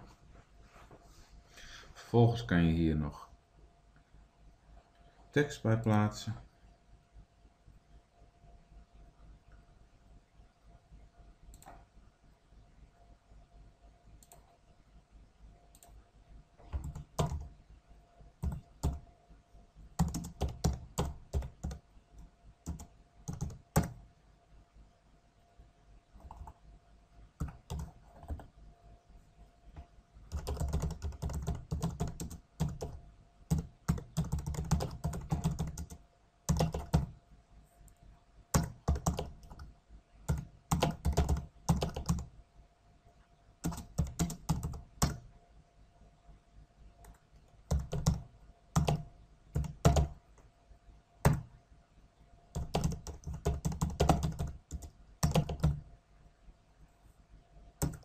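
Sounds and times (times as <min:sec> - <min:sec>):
keyboard typing: 0:16.6 - 0:17.6, 0:18.4 - 0:19.0, 0:20.0 - 0:24.0, 0:26.2 - 0:26.6, 0:27.4 - 0:28.5, 0:30.3 - 0:37.1, 0:38.5 - 0:39.7, 0:40.3 - 0:42.3, 0:43.6 - 0:45.2, 0:47.0 - 0:50.2, 0:51.2 - 0:51.5, 0:52.5 - 0:55.8, 0:57.8 - 0:58.0.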